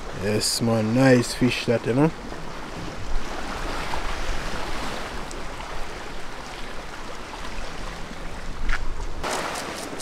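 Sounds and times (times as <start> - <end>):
sea washing against rocks: 9.2 - 10.0.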